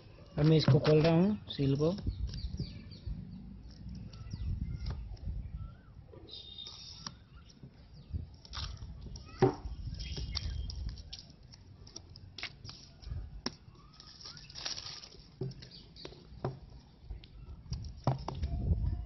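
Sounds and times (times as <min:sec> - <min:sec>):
plastic film crinkling: 0:10.0 - 0:15.8
rustling: 0:10.0 - 0:15.8.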